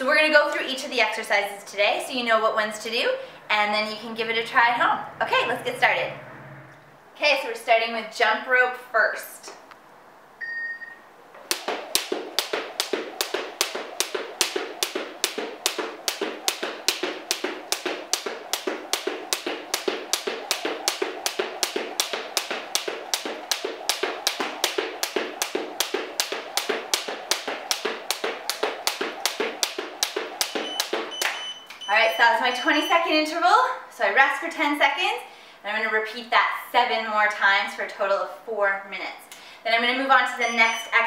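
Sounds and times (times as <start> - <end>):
jump rope slapping floor: 11.4 - 31.8.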